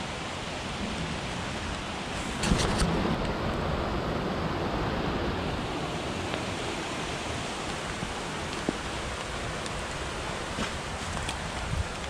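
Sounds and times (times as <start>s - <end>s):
creek flowing: 0.0s - 12.0s.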